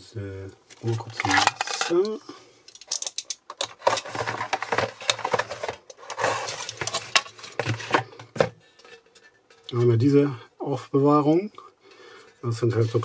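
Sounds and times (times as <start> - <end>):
small objects clicking and knocking: 0.8 - 7.6
packaging rustling: 3.0 - 8.2.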